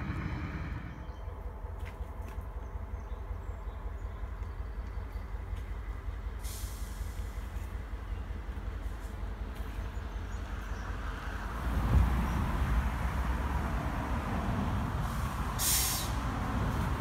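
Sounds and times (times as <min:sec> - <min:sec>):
distant diesel train passing: 0:00.0 - 0:17.0
brief hiss: 0:06.4 - 0:07.4, 0:15.1 - 0:16.2.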